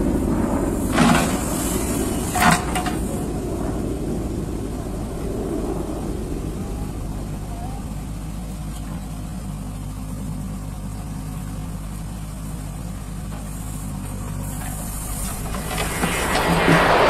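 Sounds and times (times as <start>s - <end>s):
diesel engine running: 0.0s - 17.0s
soil pouring from bucket: 14.4s - 17.0s.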